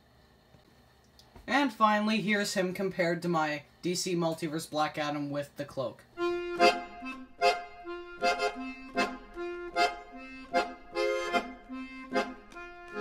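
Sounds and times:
reedy melody over a beat: 6.2s - 13.0s.

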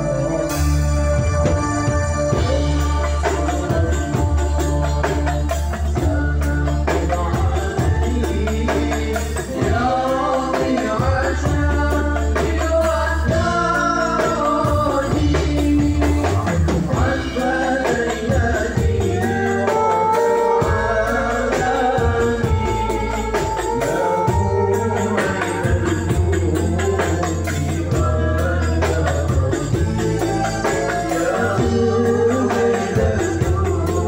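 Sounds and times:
bass guitar: 0.0s - 34.0s
electric guitar: 0.0s - 34.0s
frame drums beating: 0.0s - 34.0s
man singing into a microphone: 0.0s - 34.0s.

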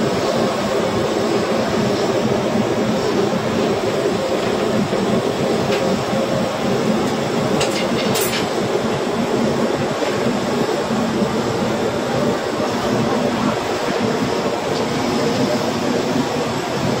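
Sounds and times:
blowtorch flame rushing: 0.0s - 17.0s.

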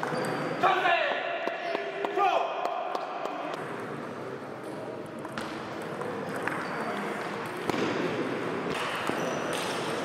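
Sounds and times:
sports hall background noise: 0.0s - 10.0s.

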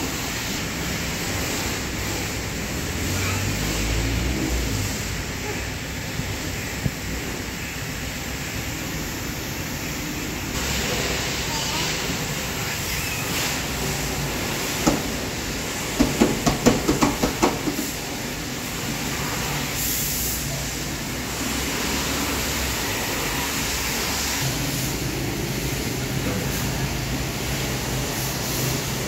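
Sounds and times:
sharp knocks: 16.0s - 17.9s.

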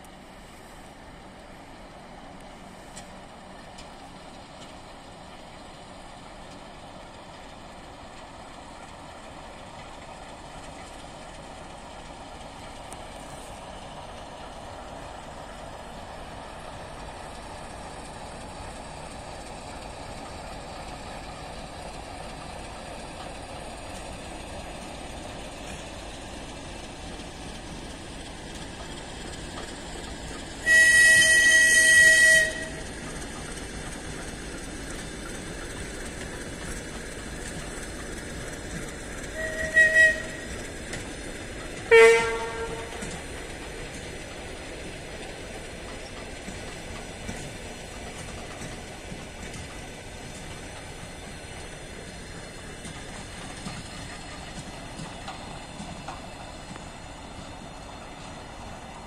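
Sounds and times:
freight train rumbling past: 0.0s - 59.0s
locomotive horn blasts: 30.6s - 32.8s, 39.4s - 40.5s, 41.9s - 43.1s.

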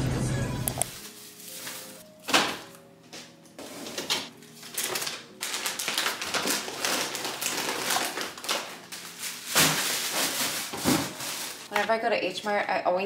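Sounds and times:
plastic packaging crinkling: 0.8s - 2.6s, 3.6s - 11.8s
items tapping plastic bins: 9.5s - 11.9s.

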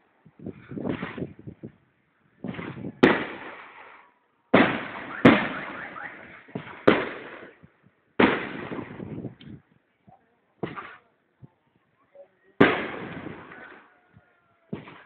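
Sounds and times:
fireworks bangs: 0.8s - 1.4s, 2.4s - 9.4s, 10.6s - 11.1s, 12.6s - 14.0s, 14.7s - 15.0s
soft firework pops: 10.6s - 11.1s.

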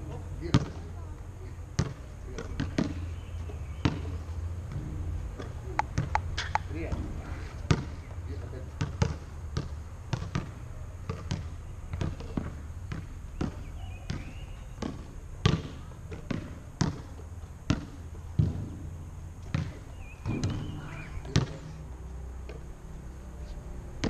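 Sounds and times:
basketball bouncing on hard court: 1.8s - 3.0s, 3.8s - 4.8s, 7.7s - 8.0s, 8.8s - 18.8s, 19.4s - 21.6s.

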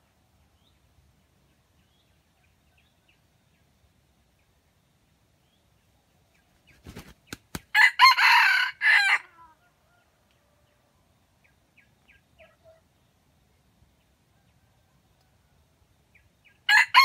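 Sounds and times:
rooster crowing: 7.7s - 10.1s, 16.7s - 17.0s.

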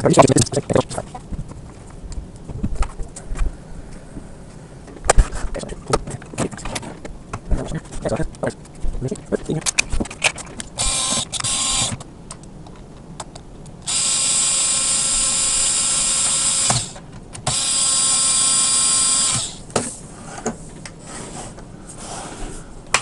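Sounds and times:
electric screwdriver whining: 10.8s - 12.0s, 13.8s - 19.6s.

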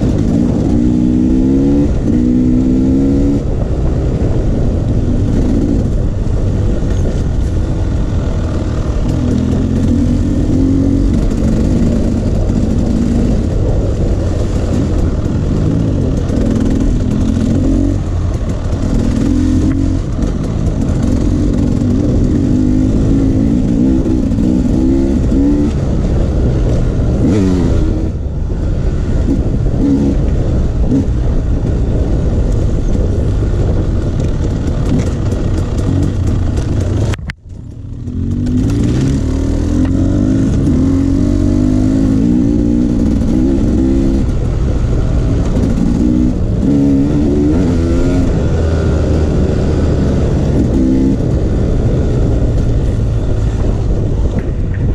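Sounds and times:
dirt bike engine revving: 0.0s - 3.6s, 8.4s - 28.2s, 38.0s - 54.0s.

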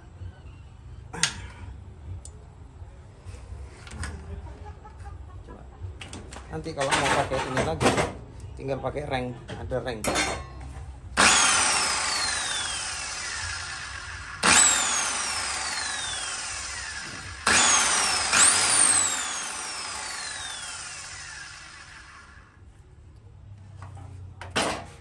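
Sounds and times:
saw motor winding down: 11.2s - 22.6s.

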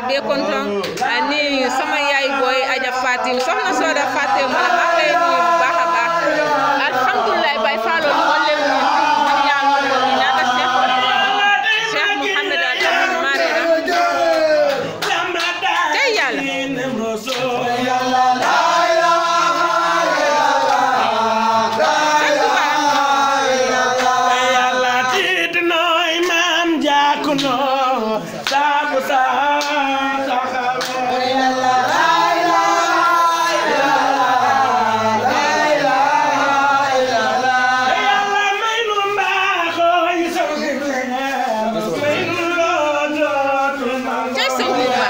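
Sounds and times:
men singing a chant: 0.0s - 45.0s.

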